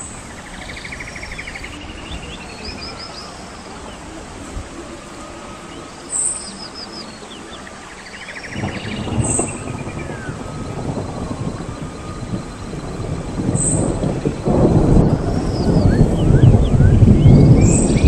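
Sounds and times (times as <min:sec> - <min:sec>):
birds singing: 0:00.0 - 0:18.0
loud low noise: 0:00.0 - 0:18.0.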